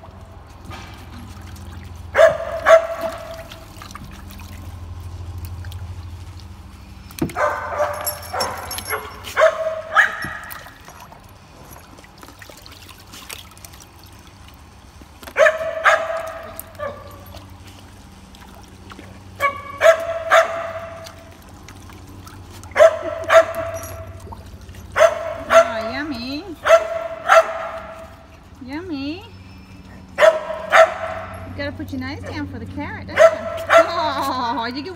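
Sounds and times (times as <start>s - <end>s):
water sloshing in wading pool: 0.0s - 34.9s
dog barking: 2.2s - 3.4s, 7.4s - 10.5s, 15.4s - 17.1s, 19.4s - 21.0s, 22.8s - 24.0s, 25.0s - 25.8s, 26.6s - 28.0s, 30.2s - 31.5s, 33.1s - 34.0s.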